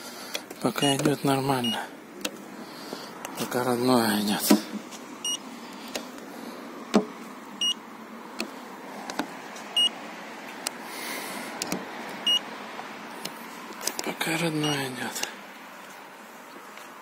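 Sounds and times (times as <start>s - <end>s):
thickness gauge beeping: 0.7s - 1.8s, 5.2s - 5.4s, 7.6s - 7.8s, 9.8s - 10.0s, 12.2s - 12.5s, 14.6s - 14.8s.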